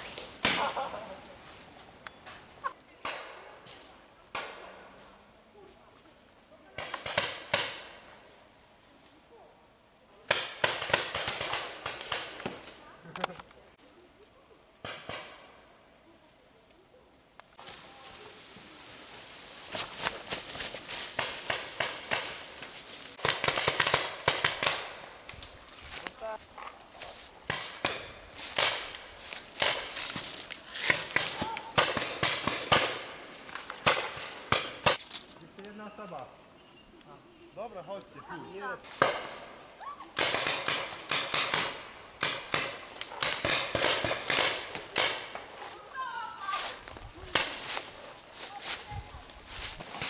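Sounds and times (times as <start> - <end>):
paintball markers firing: 40.2 - 45.4.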